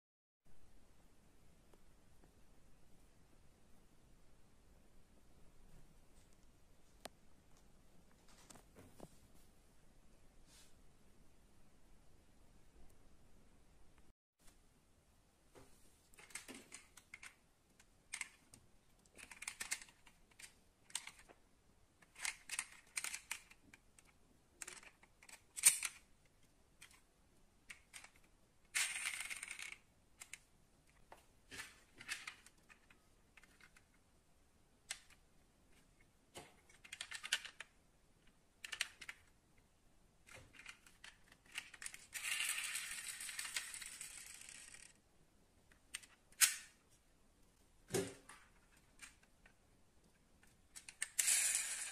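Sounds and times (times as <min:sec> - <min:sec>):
metal toy cars clicking on wood: 0:16.1 - 0:21.4, 0:22.0 - 0:26.1, 0:27.7 - 0:33.9, 0:36.7 - 0:37.8, 0:38.6 - 0:39.3, 0:40.2 - 0:45.0, 0:50.4 - 0:51.9.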